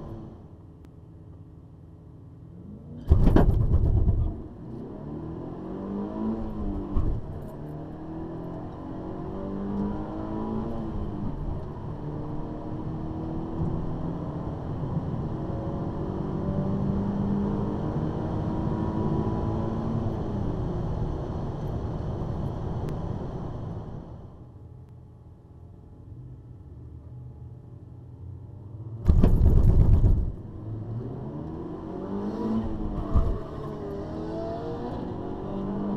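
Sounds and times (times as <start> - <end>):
car engine accelerating: 29.0 - 35.9.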